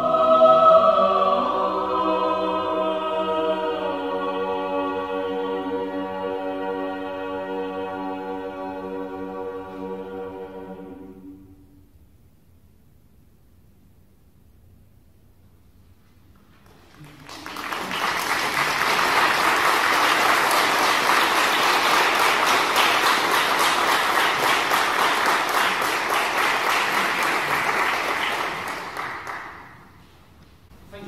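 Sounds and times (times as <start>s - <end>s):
audience applauding: 16.6s - 30.0s.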